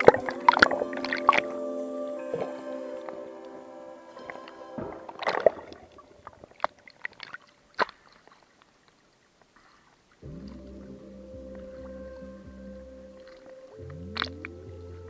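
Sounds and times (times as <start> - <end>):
background music: 0.0 - 6.3, 10.2 - 15.0
water sloshing: 4.1 - 8.9.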